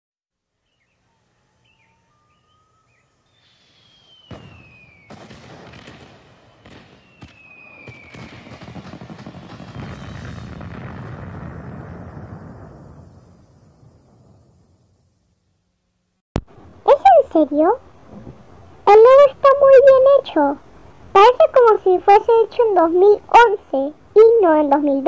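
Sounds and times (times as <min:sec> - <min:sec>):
fireworks falling whistles: 0:01.5 - 0:15.4
firework chirps: 0:03.2 - 0:15.4
firework bangs: 0:03.7 - 0:15.1
fireworks crackling: 0:04.0 - 0:15.1.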